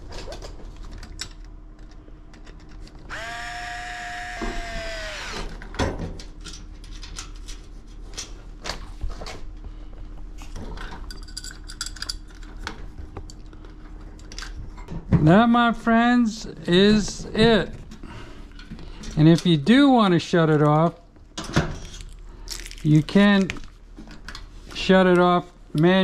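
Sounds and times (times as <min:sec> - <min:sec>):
clicks and knocks of handling parts: 0:00.0 - 0:03.6, 0:05.4 - 0:09.4, 0:10.4 - 0:15.1
cordless screwdriver motor whining: 0:03.1 - 0:05.6.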